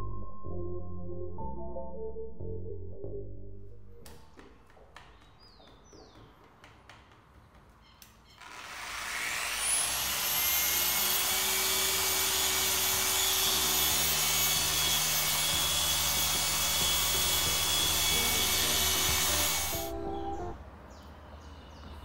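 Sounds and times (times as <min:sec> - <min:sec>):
electric polisher motor whine: 0:08.4 - 0:20.6.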